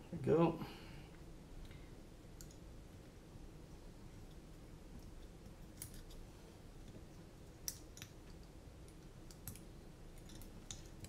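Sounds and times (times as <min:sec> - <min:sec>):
small parts clicking and tapping: 0:01.1 - 0:02.7, 0:04.2 - 0:11.0.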